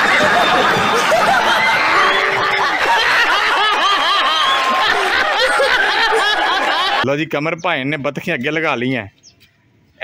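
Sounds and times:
group of people laughing: 0.0s - 7.0s.

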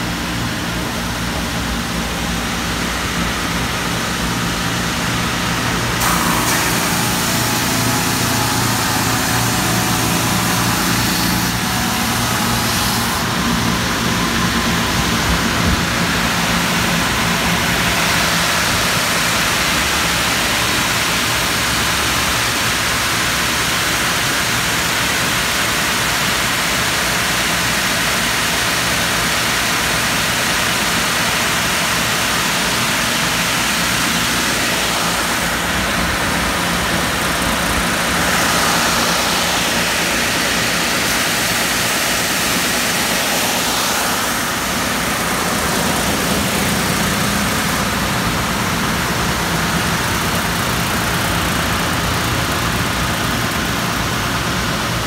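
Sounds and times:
belt sanding machine whirring: 1.2s - 21.0s, 30.8s - 54.3s.

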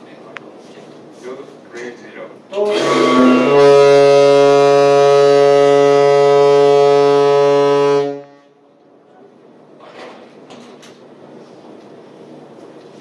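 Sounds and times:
ship's horn blast: 2.5s - 8.8s.

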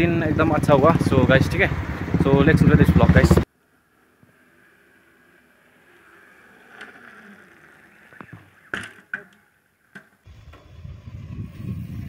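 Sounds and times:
bike rolling on tarmac: 0.0s - 12.0s
bike clicks and clacks: 4.1s - 11.8s.

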